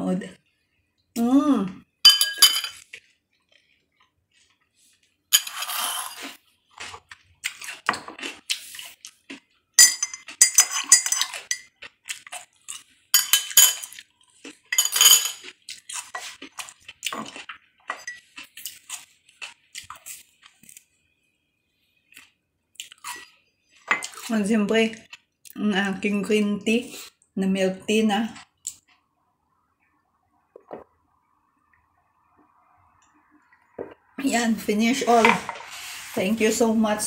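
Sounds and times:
cutlery clinking on ceramic dishes: 0:02.1 - 0:02.8, 0:09.8 - 0:11.8, 0:13.1 - 0:14.0, 0:14.7 - 0:15.5, 0:17.2 - 0:18.3.

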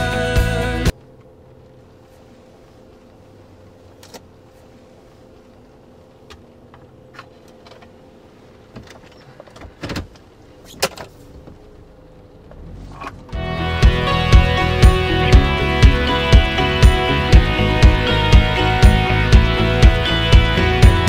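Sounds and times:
low hum in car: 0:00.0 - 0:21.0.

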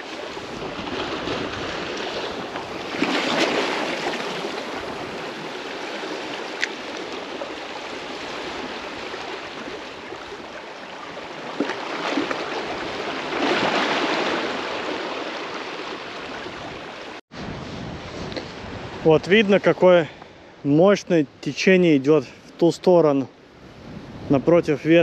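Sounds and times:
sea water rushing and splashing: 0:00.0 - 0:20.0.

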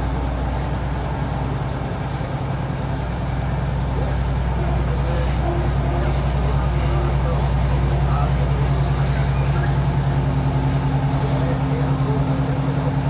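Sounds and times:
diesel engine drone: 0:00.0 - 0:13.0.

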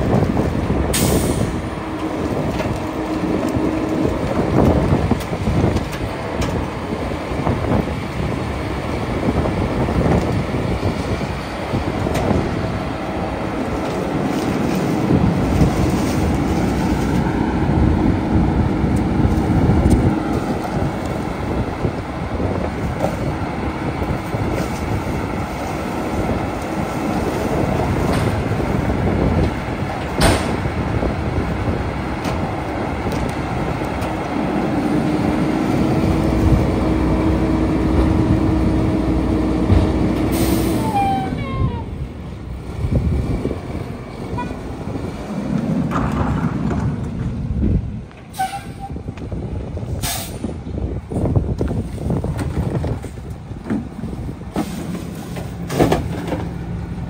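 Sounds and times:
garbage truck diesel engine: 0:00.0 - 0:57.0.

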